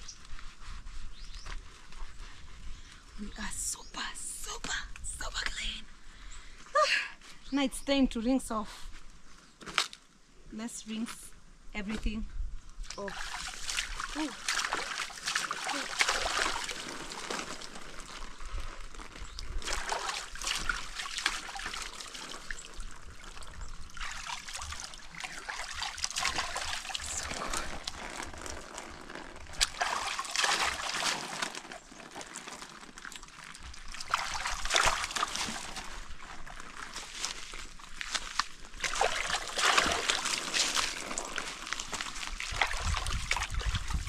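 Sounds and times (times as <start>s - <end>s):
water splashing over body: 12.9s - 44.0s
water trickling and dripping: 19.0s - 28.6s.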